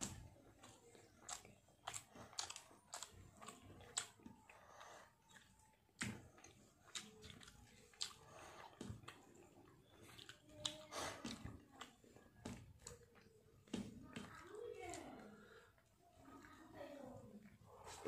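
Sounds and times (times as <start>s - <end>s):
chewing food: 0.0s - 18.0s
wet mouth clicks and smacks: 0.6s - 4.6s, 5.2s - 13.3s.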